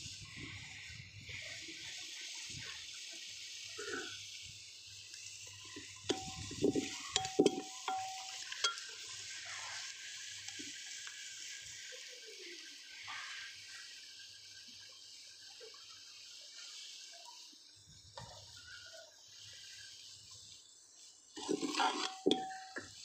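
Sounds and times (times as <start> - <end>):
masala sizzling in a pot: 0.0 - 23.0
ladle clanking against a pot: 6.1 - 8.9, 21.4 - 23.0.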